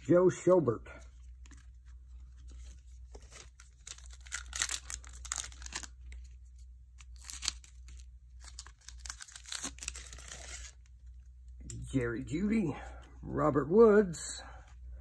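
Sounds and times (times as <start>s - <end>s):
foil wrappers crinkling and tearing: 2.3s - 6.4s, 7.0s - 10.9s.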